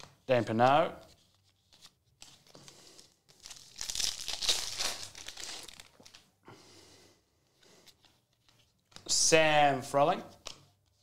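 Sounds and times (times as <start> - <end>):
cards rustling: 0.0 - 6.3
card pack wrapper tearing and crinkling: 3.3 - 6.3.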